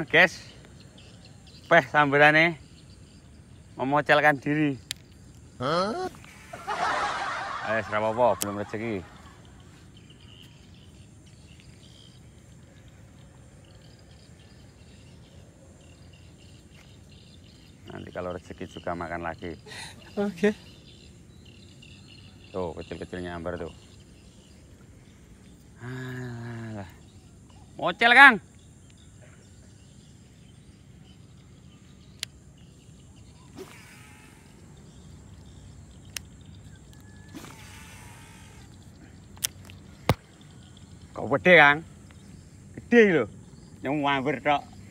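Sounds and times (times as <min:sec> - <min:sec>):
insects chirping: 0:00.0 - 0:44.9
high hiss: 0:03.7 - 0:09.1, 0:31.7 - 0:36.5, 0:37.2 - 0:40.4
faint animal call: 0:33.4 - 0:34.9, 0:36.9 - 0:39.1
sharp click: 0:39.4 - 0:40.2.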